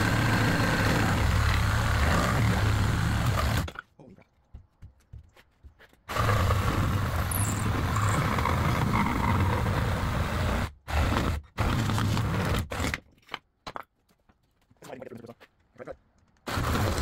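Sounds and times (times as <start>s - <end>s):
reciprocating saw cutting wood: 0.0s - 3.8s, 6.1s - 13.0s, 16.5s - 17.0s.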